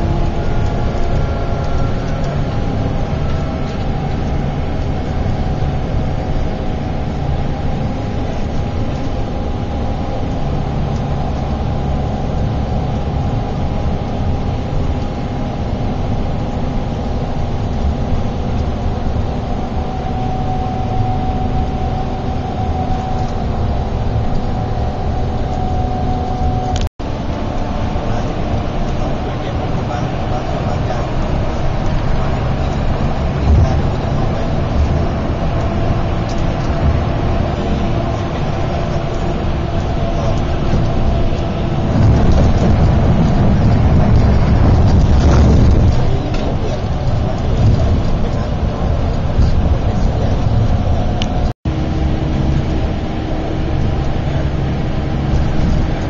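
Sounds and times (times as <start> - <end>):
bus engine drone: 0.0 - 56.0
road noise: 0.0 - 56.0.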